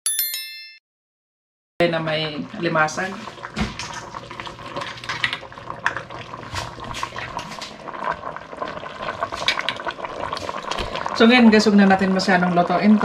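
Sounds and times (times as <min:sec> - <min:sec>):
pot simmering and bubbling: 0:01.8 - 0:13.0.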